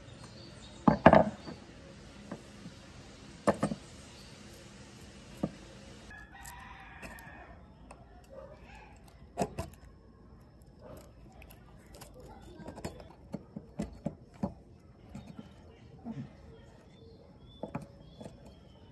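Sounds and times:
rooster crowing: 6.1s - 7.7s.

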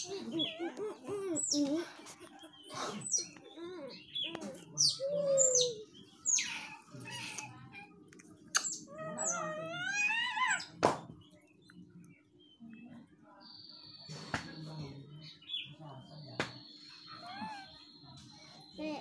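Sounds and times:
baby monkey squealing cries: 0.0s - 1.7s, 4.8s - 7.9s, 8.6s - 10.8s, 17.1s - 17.7s.

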